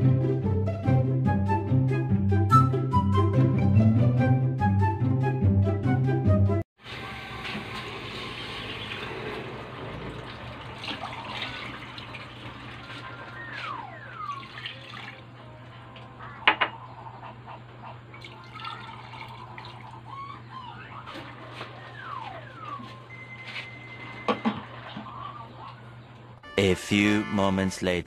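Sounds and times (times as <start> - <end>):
water pouring and splashing: 6.8 - 15.4, 18.1 - 20.1, 21.0 - 25.2.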